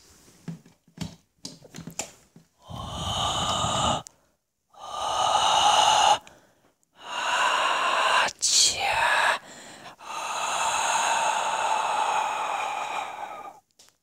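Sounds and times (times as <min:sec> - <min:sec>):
heavy breathing: 0:02.6 - 0:13.7.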